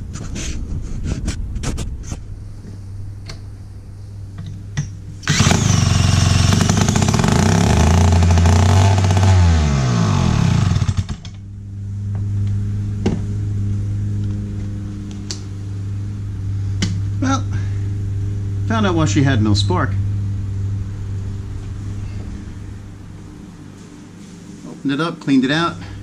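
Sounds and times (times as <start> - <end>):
loud motor running: 4.7 - 24.8.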